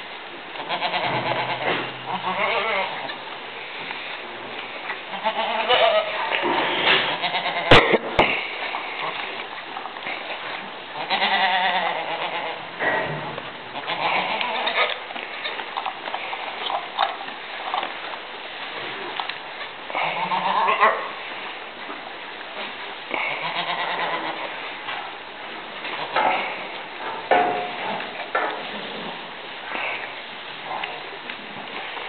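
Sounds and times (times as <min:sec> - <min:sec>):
goats bleating: 0:00.6 - 0:03.1, 0:05.0 - 0:06.4, 0:07.0 - 0:09.3, 0:11.0 - 0:12.7, 0:13.7 - 0:16.6, 0:19.6 - 0:21.2, 0:23.1 - 0:24.6.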